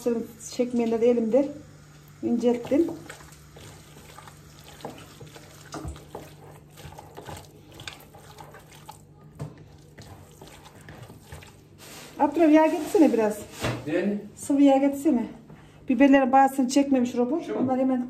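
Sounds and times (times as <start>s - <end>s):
hand kneading wet minced meat: 2.4s - 13.4s.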